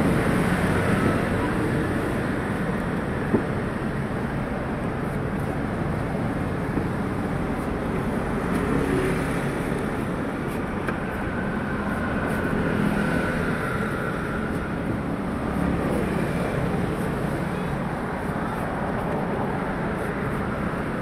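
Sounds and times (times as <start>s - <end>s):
road traffic rumble: 0.0s - 21.0s.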